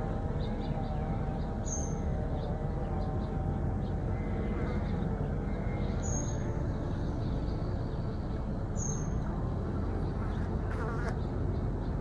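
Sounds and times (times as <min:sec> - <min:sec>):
low rumbling background noise: 0:00.0 - 0:12.0.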